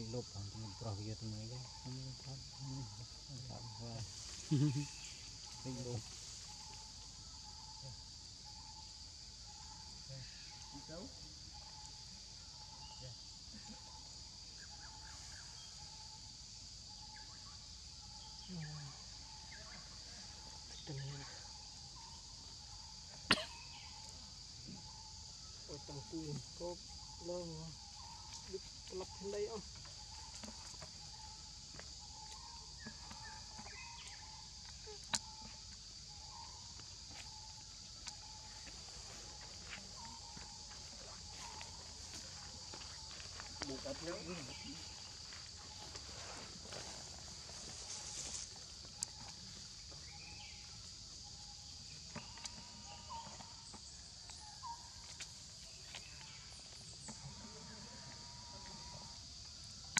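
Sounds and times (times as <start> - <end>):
high-pitched insect drone: 0.0 - 59.9
faint ticks: 52.1 - 53.6.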